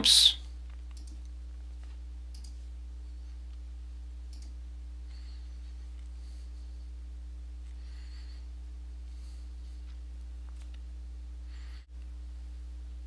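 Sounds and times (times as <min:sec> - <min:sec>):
steady low hum: 0:00.0 - 0:13.0
computer mouse clicks: 0:00.7 - 0:01.3, 0:02.3 - 0:02.6, 0:04.3 - 0:04.6.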